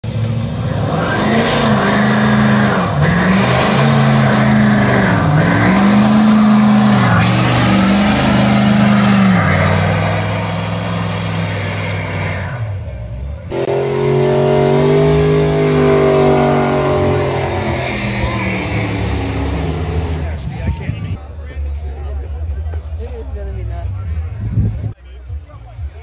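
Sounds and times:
pickup engine revving: 0.0s - 21.2s
spinning tires hissing: 0.1s - 13.0s.

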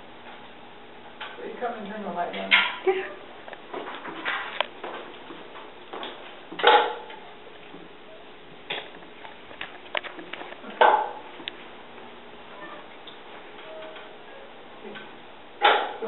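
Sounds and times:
sharp clattering knocks: 6.5s - 7.2s.

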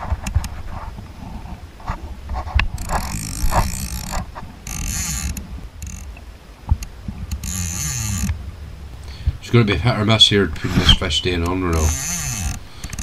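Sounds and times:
fishing reel ratchet buzzing: 2.8s - 6.1s, 7.3s - 8.4s, 11.7s - 13.0s.

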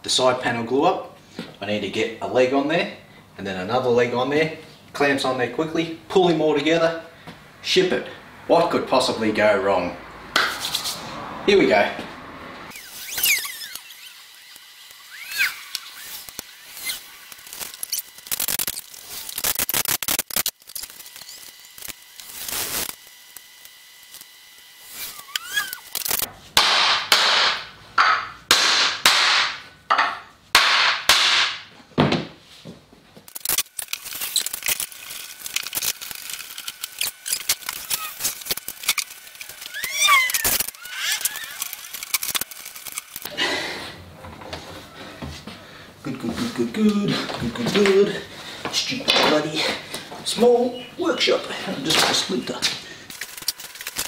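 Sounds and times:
mallet knocking wood: 26.6s - 32.3s.

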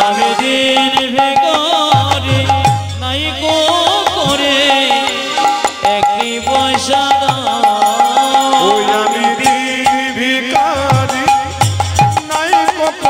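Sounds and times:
gliding melody: 3.4s - 10.7s.

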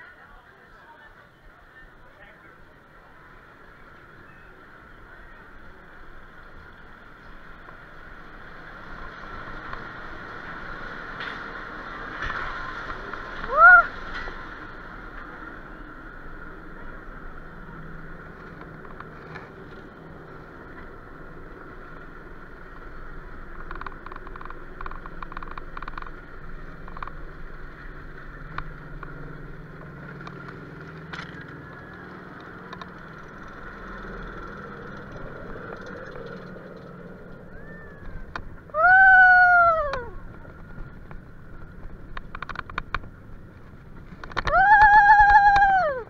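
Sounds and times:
lift hill mechanical whine: 1.5s - 46.0s
lift chain clicks: 30.1s - 38.4s.

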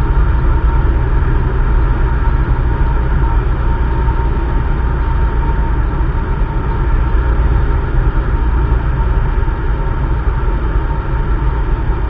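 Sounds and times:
small plane engine droning: 0.0s - 12.0s.

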